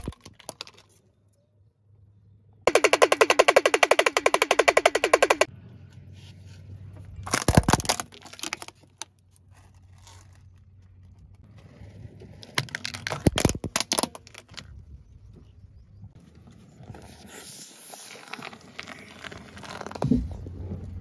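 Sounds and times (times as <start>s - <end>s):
plastic toy cracking under tyre: 0.0s - 1.0s, 2.7s - 5.5s, 7.2s - 9.2s, 12.4s - 14.7s.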